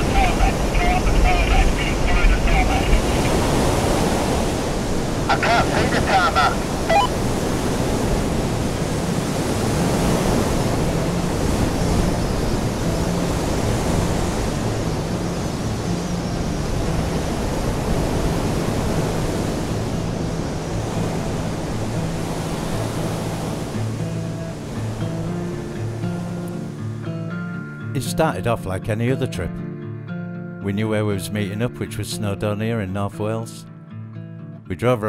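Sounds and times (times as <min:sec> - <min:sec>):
strong wind: 0:00.0 - 0:26.4
breaking surf: 0:00.0 - 0:26.8.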